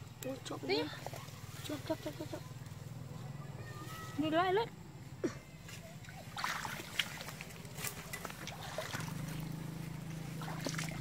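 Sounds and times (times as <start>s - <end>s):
splashing in shallow water: 5.7s - 11.0s.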